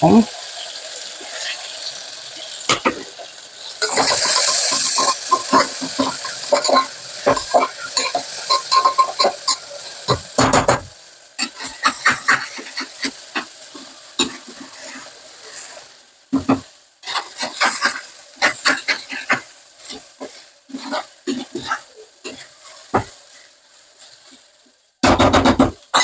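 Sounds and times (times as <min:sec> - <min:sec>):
onions sizzling in oil: 0:00.0 - 0:26.0
spoon scraping pan: 0:01.2 - 0:10.4, 0:11.4 - 0:24.4.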